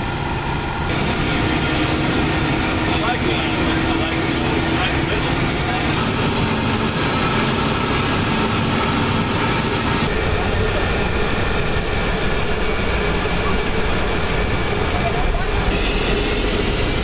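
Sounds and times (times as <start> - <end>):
jet engine and airflow rumble: 0.0 - 17.0.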